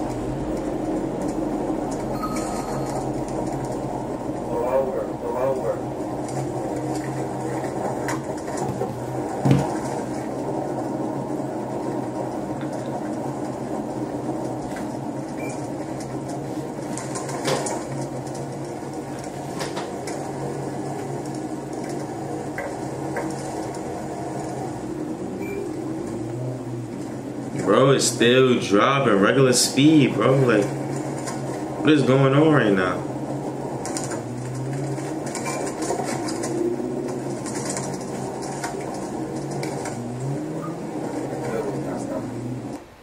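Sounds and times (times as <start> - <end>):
car engine and road noise: 0.0 - 43.0.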